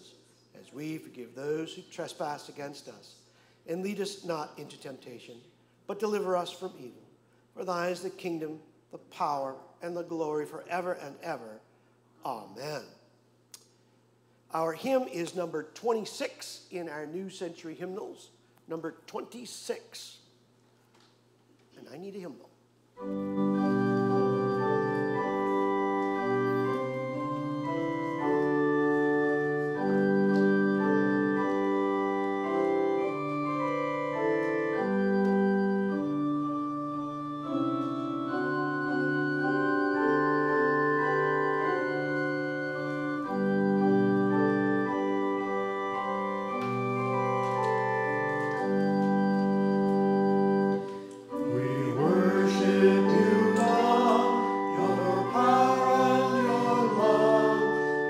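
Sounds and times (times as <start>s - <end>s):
church organ playing chords: 23.0s - 58.0s
congregation singing: 48.4s - 58.0s.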